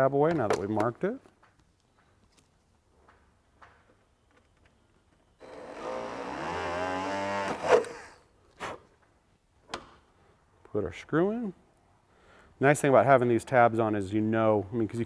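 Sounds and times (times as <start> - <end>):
rotary tool drilling: 5.4 - 8.2.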